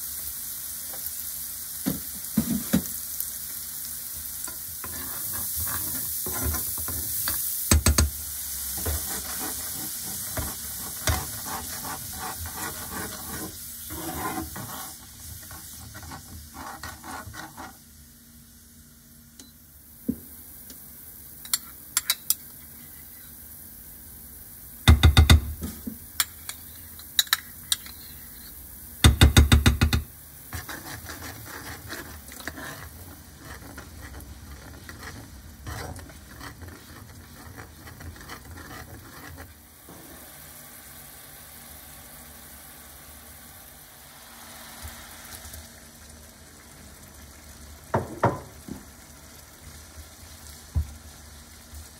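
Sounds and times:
shallots sizzling in oil: 0:00.0 - 0:51.9
metal spoon stirring and scraping: 0:04.5 - 0:07.3, 0:08.8 - 0:17.8, 0:26.2 - 0:28.5, 0:30.5 - 0:39.6
spoon stirring liquid: 0:29.9 - 0:39.6.

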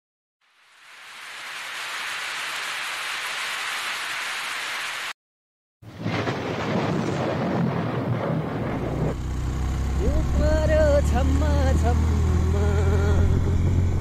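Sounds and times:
rain-like hiss: 0:00.4 - 0:05.2.

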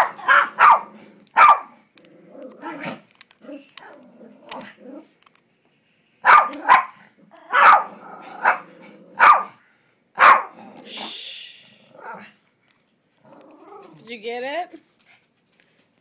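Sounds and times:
dog growling: 0:00.0 - 0:01.4, 0:02.0 - 0:05.2, 0:06.5 - 0:09.6, 0:10.4 - 0:11.1, 0:11.8 - 0:12.4, 0:13.2 - 0:14.0
small dogs barking: 0:00.0 - 0:01.8, 0:06.2 - 0:09.6, 0:10.2 - 0:10.7
brief hiss: 0:10.9 - 0:11.9.

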